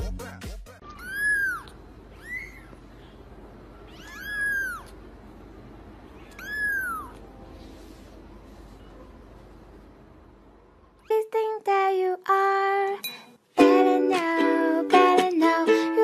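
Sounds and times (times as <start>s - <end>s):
kitten mewing: 0.8s - 2.8s, 3.8s - 5.0s, 6.1s - 7.3s.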